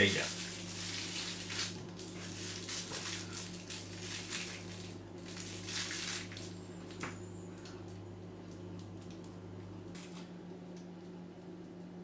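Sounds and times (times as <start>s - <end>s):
plastic piping bag crinkling: 0.0s - 6.6s
steady low hum: 0.0s - 12.0s.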